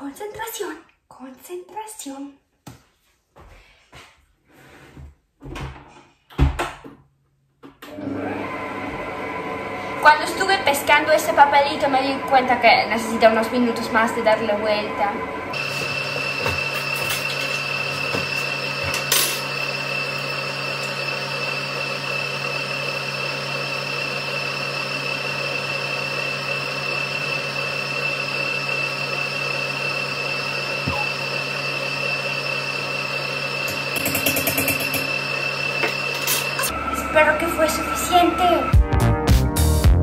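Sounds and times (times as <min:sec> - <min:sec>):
stand mixer motor whine: 0:07.9 - 0:38.9.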